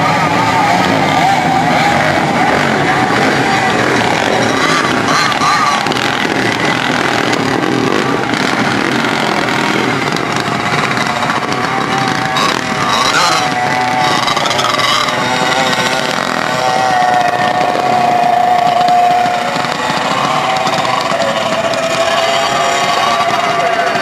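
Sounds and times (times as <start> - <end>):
go-kart engine revving high: 0.0 - 24.0.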